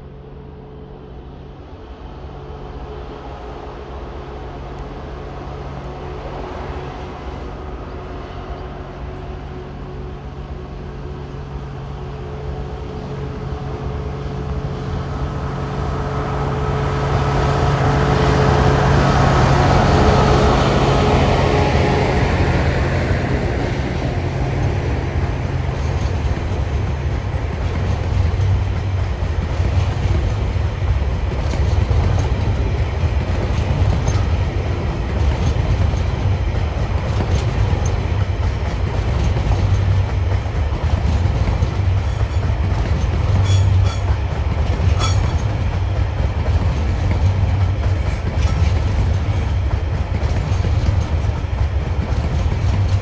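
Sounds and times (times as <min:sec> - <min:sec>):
freight train rumbling past: 0:00.0 - 0:53.0
locomotive engine: 0:00.0 - 0:53.0
wheels clacking over rail joints: 0:11.4 - 0:53.0
wheel clicks and squeaks: 0:41.4 - 0:46.0, 0:47.0 - 0:49.8.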